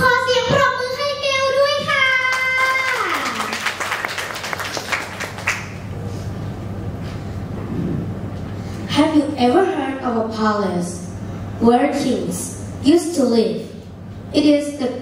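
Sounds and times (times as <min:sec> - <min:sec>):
audience clapping: 0:01.9 - 0:05.9.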